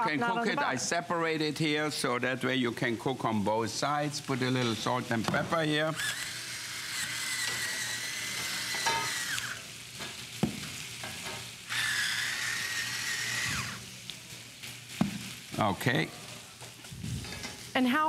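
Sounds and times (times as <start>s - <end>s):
food sizzling on grill: 0.0s - 18.0s
electric grinder motor whine: 5.9s - 9.7s, 11.7s - 13.8s.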